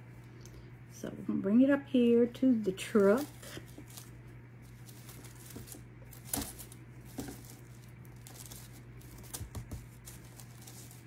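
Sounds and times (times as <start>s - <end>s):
rustling of dried grass and paper: 2.6s - 11.0s.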